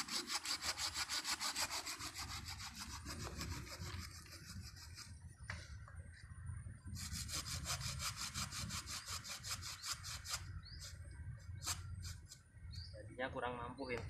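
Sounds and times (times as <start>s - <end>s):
hand saw cutting through root: 0.0s - 5.2s, 7.0s - 11.0s, 11.6s - 12.4s.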